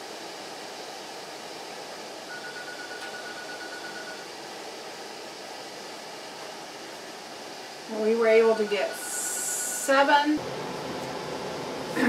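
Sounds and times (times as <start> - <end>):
rushing hiss of background noise: 0.0 - 10.7
steady high tone: 2.3 - 4.3, 7.9 - 10.4.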